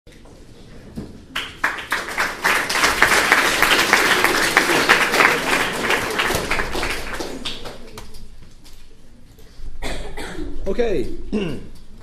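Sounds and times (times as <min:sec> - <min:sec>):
audience applauding: 0:01.4 - 0:08.0.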